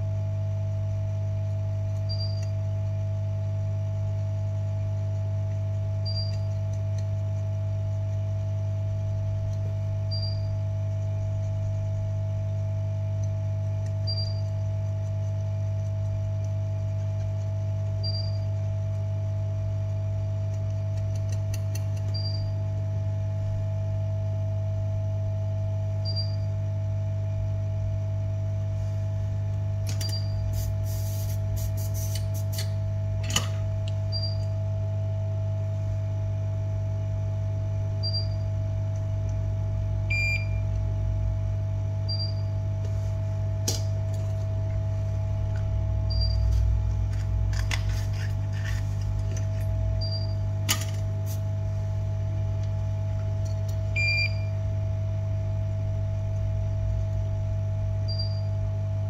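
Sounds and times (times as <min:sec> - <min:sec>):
electronic equipment humming: 0:00.0 - 0:59.0
small tools clicking: 0:20.6 - 0:22.1
lower beep: 0:42.1 - 0:42.5, 0:46.1 - 0:46.5, 0:50.0 - 0:50.4.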